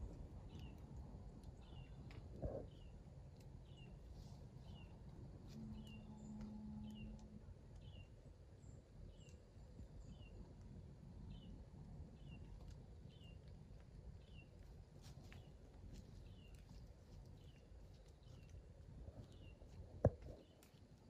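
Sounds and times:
small bird chirping: 1.5s - 3.0s, 3.6s - 10.5s, 11.3s - 21.0s
faint low rustle: 12.2s - 21.0s.

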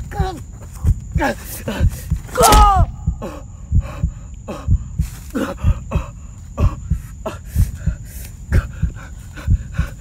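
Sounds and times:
dull low thumps: 0.0s - 10.0s
boy groaning and grunting: 1.2s - 3.5s.

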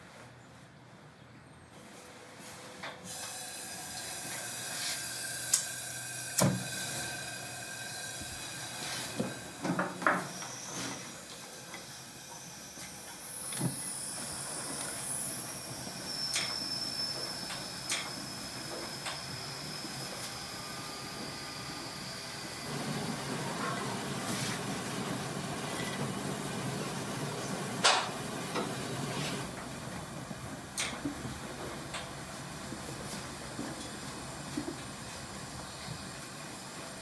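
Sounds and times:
burning gas hissing: 3.1s - 14.7s.

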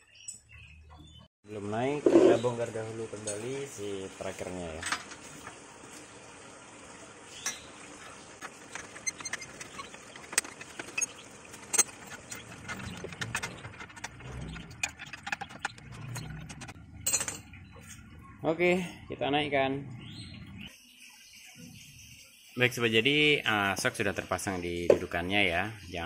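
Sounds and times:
metal parts clinking and knocking: 8.5s - 17.5s.

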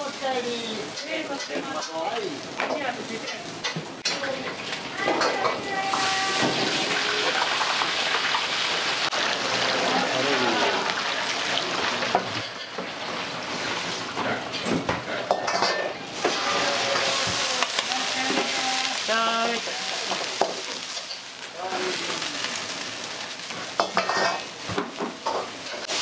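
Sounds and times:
food sizzling in a wok: 0.0s - 26.0s
metal ladle scraping a pan: 23.6s - 24.5s.

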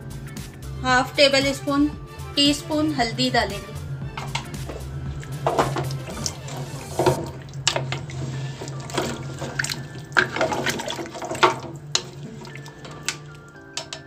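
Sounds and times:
water sloshing in a pot: 3.7s - 14.0s.

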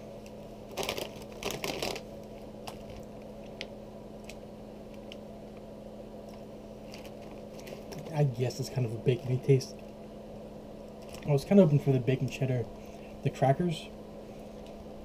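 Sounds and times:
plastic snack bag crinkling: 0.7s - 5.2s, 6.8s - 8.2s, 11.0s - 11.5s.

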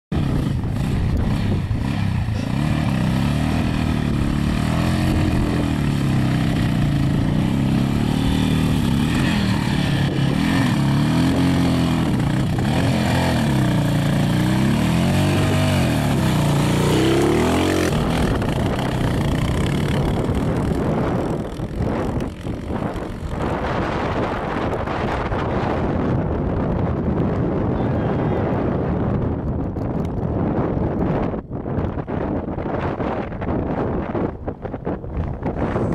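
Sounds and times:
dirt bike engine revving: 0.2s - 25.8s.

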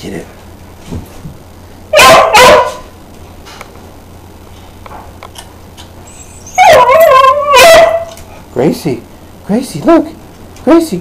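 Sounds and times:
dog yelping bark: 1.9s - 2.9s, 6.2s - 8.2s.

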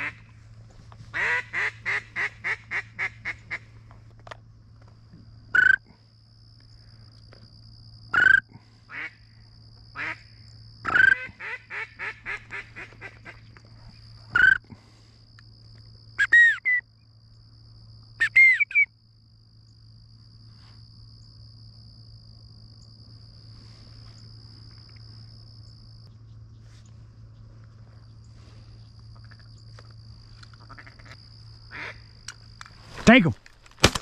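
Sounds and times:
duck quacking: 1.2s - 3.6s, 10.9s - 13.4s, 30.7s - 32.0s
whistled calls: 16.2s - 16.8s, 18.2s - 18.9s.

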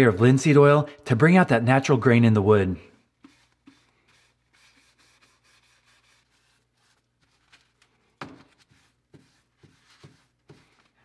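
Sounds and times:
cloth rubbing on wood: 3.0s - 7.8s, 8.4s - 11.0s.

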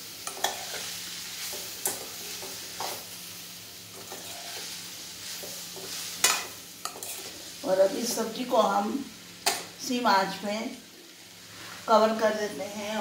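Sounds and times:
vegetables sizzling in a pan: 0.0s - 13.0s
spatula scraping and knocking pan: 5.4s - 7.4s.

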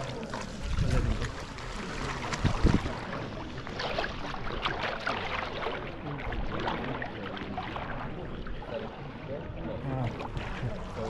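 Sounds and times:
river water flowing and splashing: 0.0s - 11.0s.

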